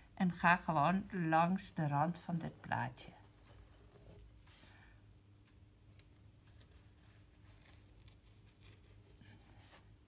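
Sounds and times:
low steady hum: 0:00.0 - 0:10.0
wooden skewer scratching clay: 0:06.5 - 0:09.8.

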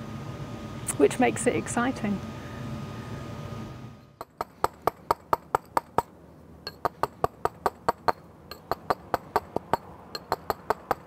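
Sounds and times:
chisel struck with a mallet: 0:06.7 - 0:11.0.

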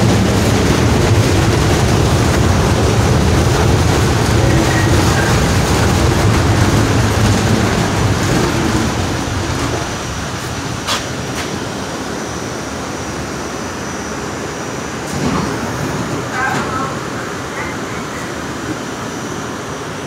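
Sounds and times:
subway car wheels rumbling: 0:00.0 - 0:20.0.

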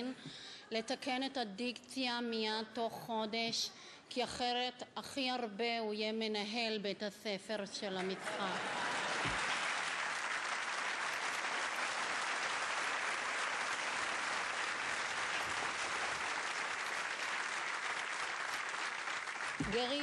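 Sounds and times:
audience applauding: 0:08.1 - 0:20.0.

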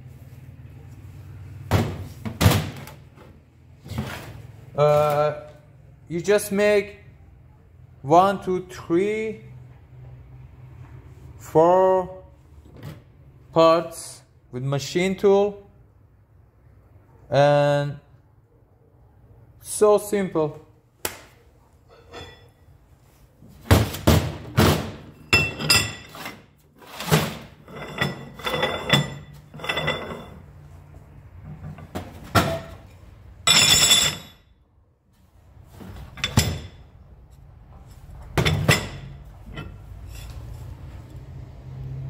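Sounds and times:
metal parts clanking on workbench: 0:21.9 - 0:22.6, 0:25.2 - 0:30.4, 0:31.7 - 0:34.4, 0:36.0 - 0:36.9, 0:38.4 - 0:40.4.

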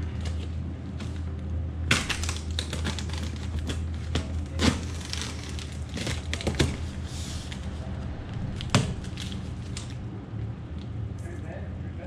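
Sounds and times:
tape and flaps snapping: 0:01.9 - 0:06.9
knife cutting cardboard box: 0:01.9 - 0:07.7
plastic packaging crinkling: 0:01.9 - 0:07.8
tearing rustle: 0:01.9 - 0:10.0
loud knock: 0:08.4 - 0:09.4.

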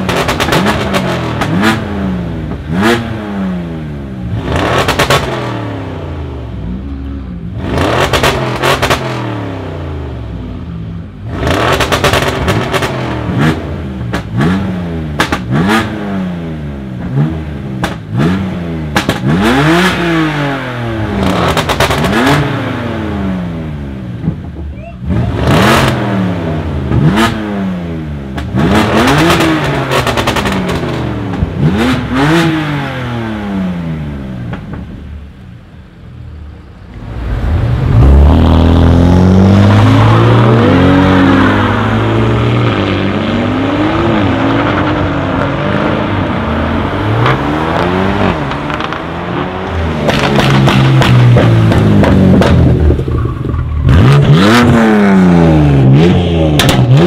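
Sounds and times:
car engine revving: 0:00.0 - 0:57.0
exhaust crackles and pops: 0:17.8 - 0:18.2, 0:18.9 - 0:19.4, 0:28.3 - 0:31.6, 0:34.4 - 0:35.6, 0:48.3 - 0:54.9, 0:56.5 - 0:57.0.

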